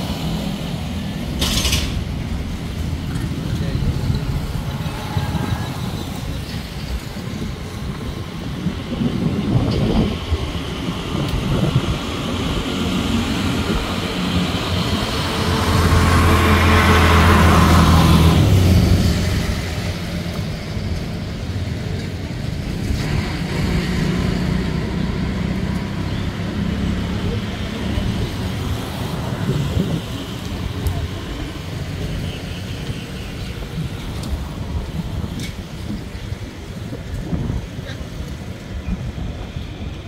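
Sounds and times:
low traffic rumble: 0.0 - 40.0
vehicle passing by: 11.4 - 20.4.

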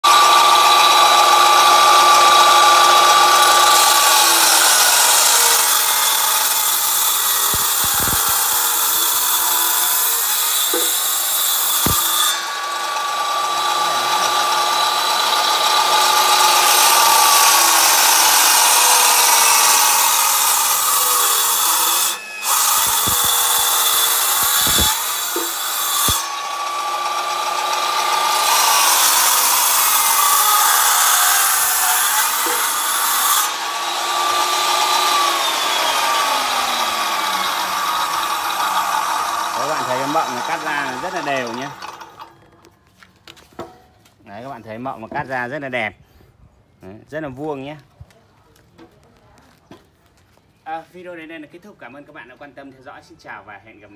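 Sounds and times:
circular saw whining through wood: 0.0 - 42.7.

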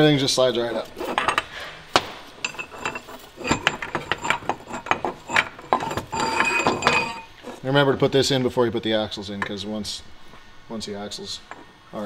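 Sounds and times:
metal gear parts clinking: 2.4 - 7.3.

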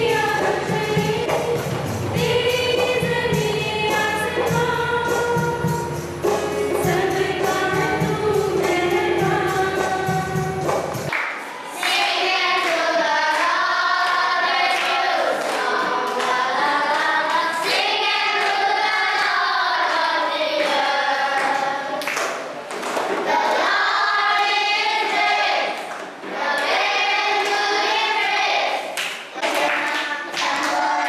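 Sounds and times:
children singing in unison: 0.0 - 22.2, 22.9 - 31.0
hand clapping: 10.6 - 23.2, 28.9 - 31.0.

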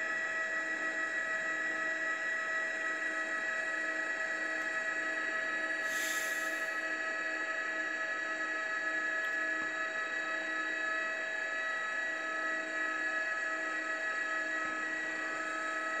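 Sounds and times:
helicopter turbine whine: 5.5 - 7.2.

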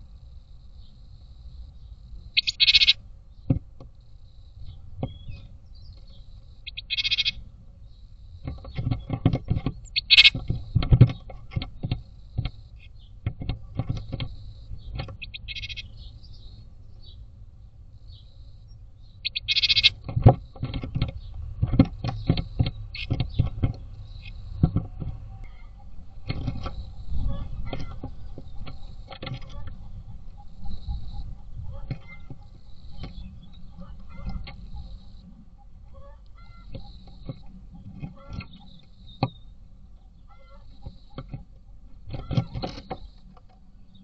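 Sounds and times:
bird buzzy scolding calls: 2.3 - 3.0, 6.1 - 7.5, 8.6 - 11.3, 12.1 - 17.2, 19.0 - 21.4, 22.1 - 41.4
claws scratching wood: 19.3 - 35.0.

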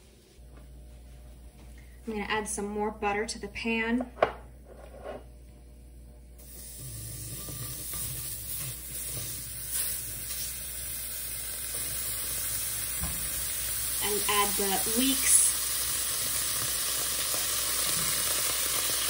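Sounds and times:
butter sizzling in a wok: 6.4 - 19.0.

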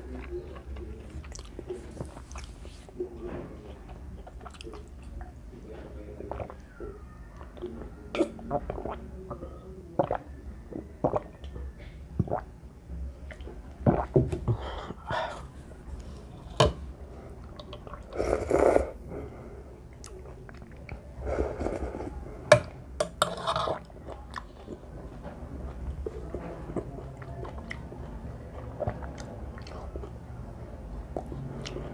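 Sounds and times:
chewing: 0.0 - 5.3, 25.7 - 30.2, 31.0 - 31.9
slurping broth: 17.9 - 19.0, 21.2 - 22.2.

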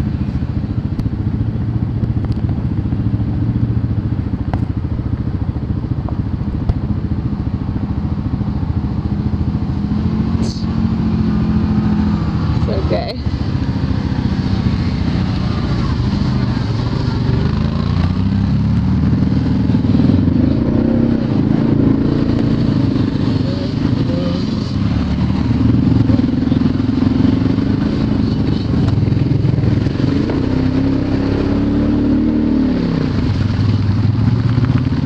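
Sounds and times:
off-road vehicle engine revving: 9.8 - 33.6.

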